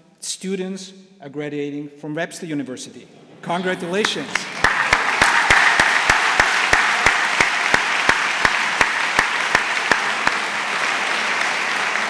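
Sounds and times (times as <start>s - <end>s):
audience applauding: 3.8s - 12.0s
sharp close claps: 4.0s - 12.0s.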